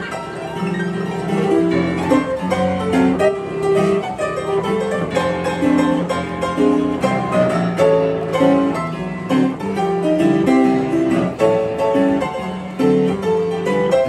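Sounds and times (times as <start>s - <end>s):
upright piano tune: 0.0s - 14.0s.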